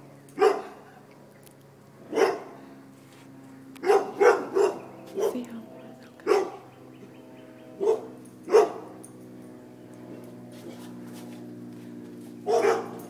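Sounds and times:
dog barking: 0:00.4 - 0:00.8, 0:02.1 - 0:02.6, 0:03.8 - 0:05.5, 0:06.2 - 0:06.7, 0:07.8 - 0:09.0, 0:12.4 - 0:13.0.

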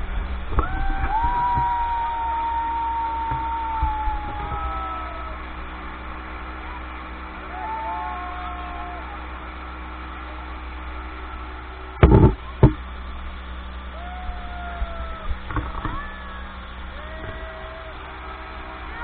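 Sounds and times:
speedboat engine running: 0:00.0 - 0:19.0
loud thumps: 0:12.0 - 0:12.9
people calling out: 0:13.9 - 0:19.0.

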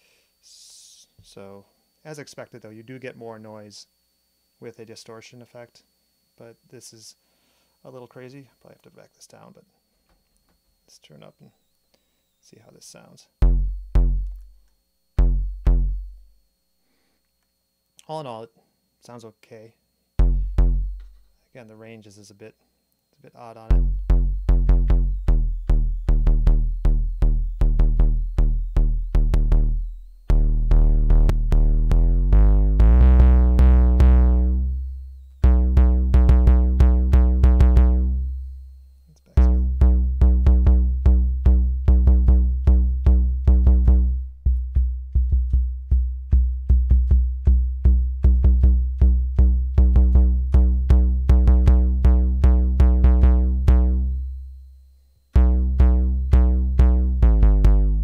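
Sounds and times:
distorted kick drum hits: 0:13.4 - 0:14.6, 0:15.2 - 0:16.4, 0:20.2 - 0:21.2, 0:23.7 - 0:38.2, 0:39.4 - 0:54.2, 0:55.4 - 0:58.0.

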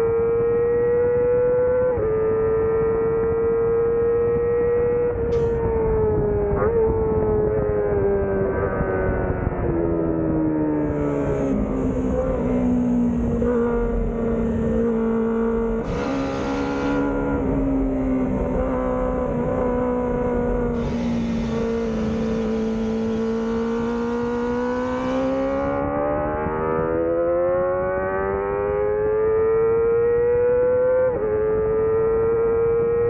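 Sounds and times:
motorcycle engine revving: 0:00.0 - 0:33.0
wind rushing at microphone: 0:05.1 - 0:15.0.

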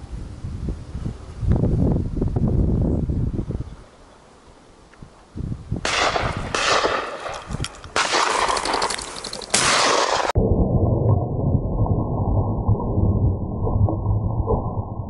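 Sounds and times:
shotgun blasts: 0:05.8 - 0:08.9, 0:09.5 - 0:10.4
bird wings clattering: 0:07.4 - 0:09.7.

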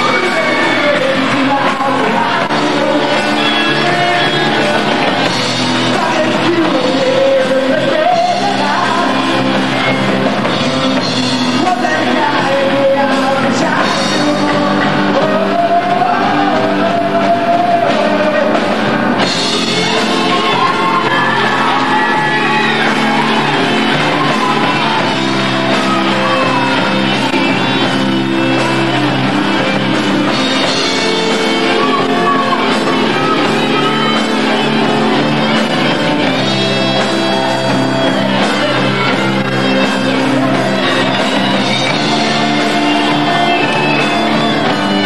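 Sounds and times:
person singing: 0:00.0 - 0:45.0
rock band playing live: 0:00.0 - 0:45.0.

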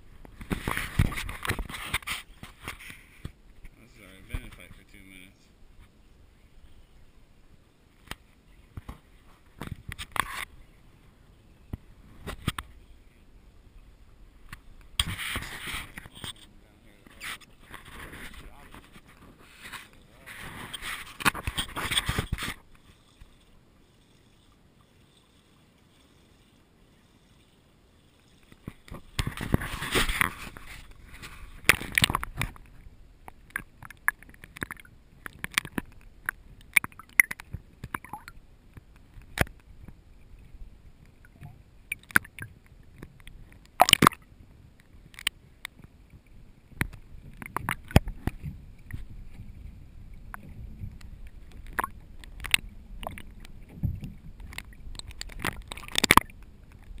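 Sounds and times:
water sloshing and gurgling: 0:00.0 - 0:57.0
sharp clicks and knocks: 0:50.3 - 0:57.0.

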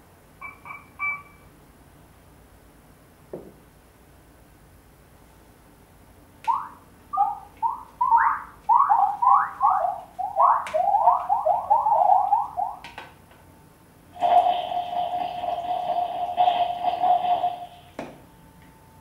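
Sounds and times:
synthetic squeaky chirps: 0:06.5 - 0:12.8.

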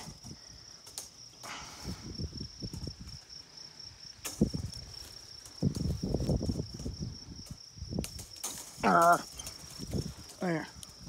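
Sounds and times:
fence wire rustling and scraping: 0:00.0 - 0:11.0
insects trilling: 0:00.0 - 0:11.0.

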